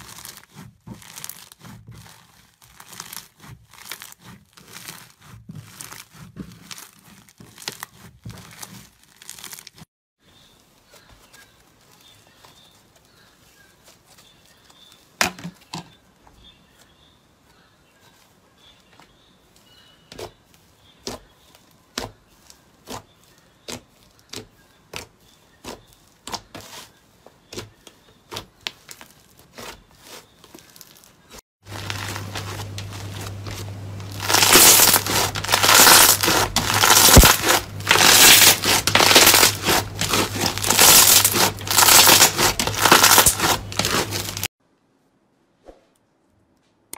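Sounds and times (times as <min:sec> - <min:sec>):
foam-bead slime crunching: 0:00.0 - 0:09.9, 0:20.2 - 0:44.6
loud crackling: 0:31.7 - 0:44.5.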